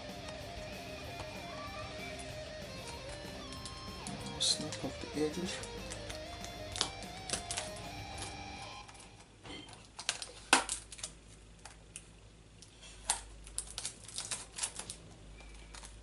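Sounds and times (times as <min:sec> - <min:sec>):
plastic snapping and clicking: 0:05.6 - 0:09.1.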